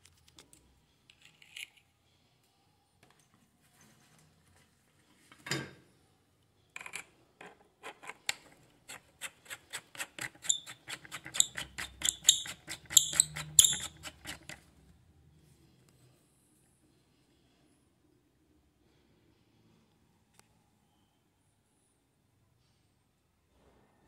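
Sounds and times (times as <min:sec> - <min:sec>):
plastic scraping in metal hilt: 0:07.9 - 0:14.6.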